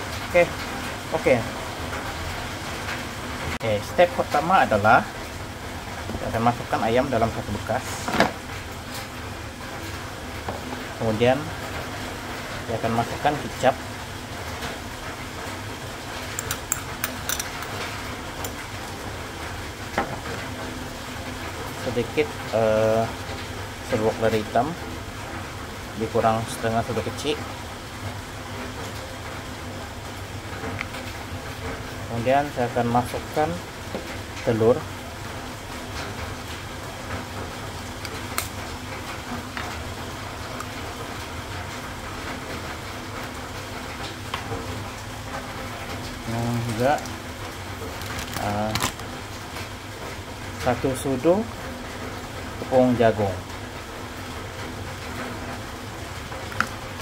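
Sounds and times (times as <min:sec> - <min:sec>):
background rumble and hiss: 0:00.0 - 0:57.0
egg cracking: 0:16.2 - 0:18.8, 0:47.8 - 0:49.2, 0:56.4 - 0:57.0
spoon clicking against bowl: 0:16.4 - 0:17.7.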